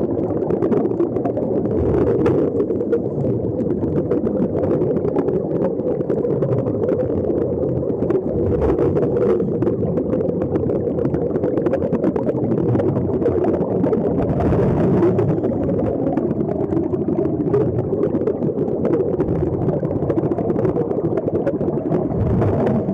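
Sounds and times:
air bubbles crackling: 0:00.0 - 0:22.9
muffled underwater rumble: 0:00.0 - 0:22.9.

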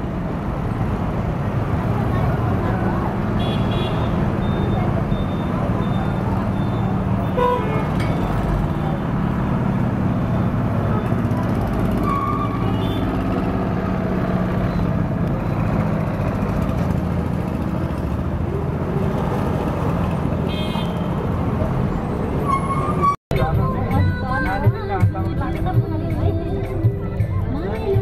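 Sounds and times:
motorcycles passing: 0:00.0 - 0:22.4
traffic engine drone: 0:00.0 - 0:28.0
car horn toots: 0:07.3 - 0:08.0.

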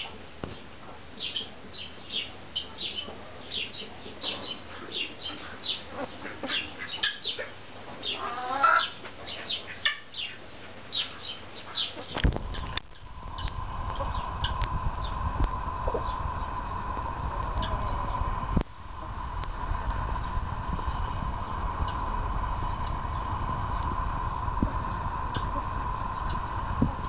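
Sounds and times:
chickens chirping: 0:01.2 - 0:18.6, 0:19.7 - 0:27.0
throaty chicken call: 0:08.1 - 0:09.0
low rumble: 0:12.2 - 0:27.0.

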